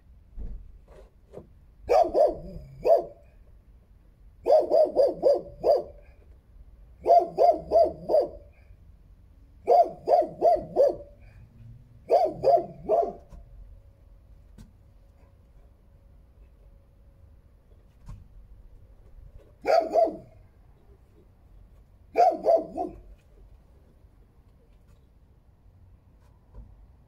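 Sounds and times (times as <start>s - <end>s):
dog barking: 1.9s - 3.3s, 4.4s - 6.2s, 7.0s - 8.7s, 9.6s - 11.4s, 12.0s - 13.4s, 19.6s - 20.4s, 22.1s - 23.1s.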